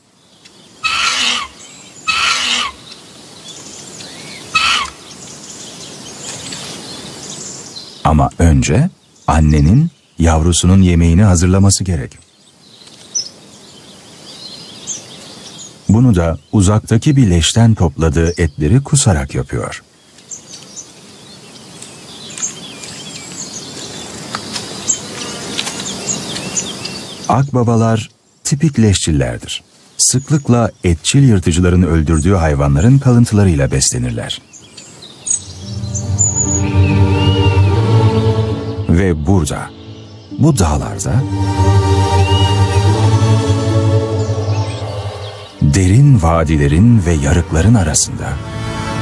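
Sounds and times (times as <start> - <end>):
insects hissing: 0.0 - 8.1
small birds chirping: 0.0 - 48.2
background hiss: 0.0 - 49.0
vulture chick rasping calls: 0.8 - 2.9, 4.1 - 5.1.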